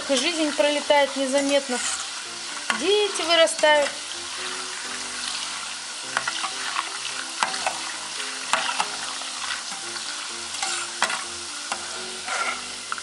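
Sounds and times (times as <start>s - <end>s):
dough sizzling in hot oil: 0.0s - 13.0s
metal skimmer scraping pot: 12.2s - 13.0s.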